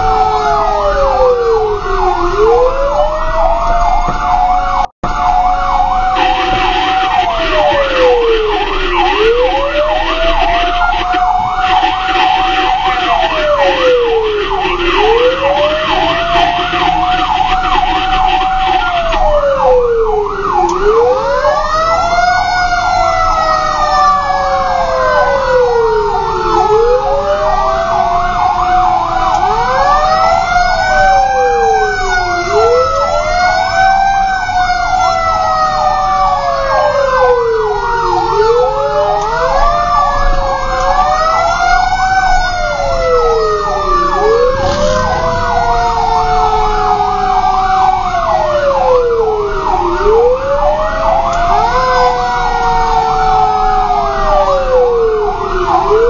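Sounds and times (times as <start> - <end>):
fast warbling siren yelp: 0.0 - 28.1, 29.5 - 34.1, 41.0 - 50.5
siren wail rising and falling: 0.0 - 56.0
siren tone sinking: 43.3 - 47.9.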